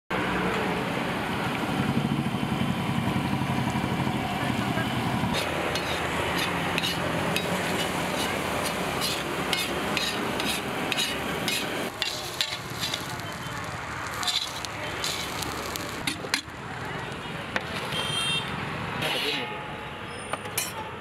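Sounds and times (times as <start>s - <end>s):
metal spatula scraping: 5.3s - 13.3s, 14.1s - 16.2s
spatula striking griddle: 5.4s - 13.2s, 14.2s - 16.5s
egg mixture sizzling on griddle: 5.4s - 16.5s.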